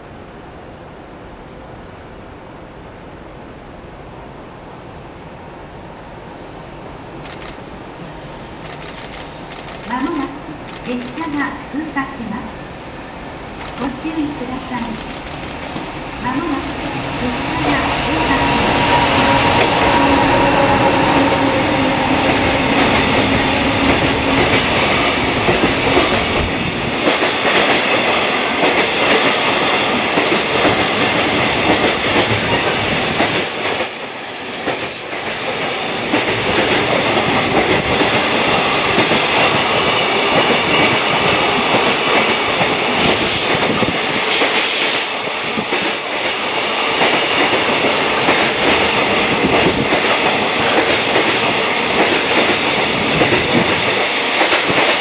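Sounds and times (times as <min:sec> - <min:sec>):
train wagons rumbling past: 0:12.7 - 0:55.0.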